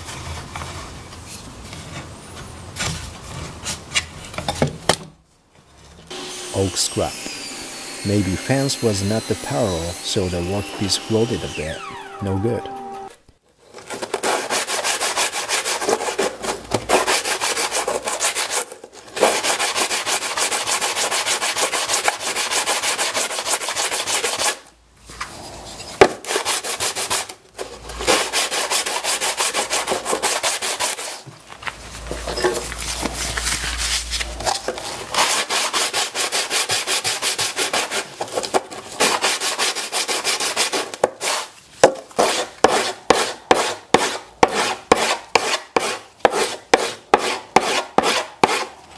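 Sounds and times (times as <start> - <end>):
wood rubbed on sandpaper: 6.5 - 13.1, 19.2 - 24.6, 28.1 - 31.2, 35.2 - 38.1, 39.0 - 41.5.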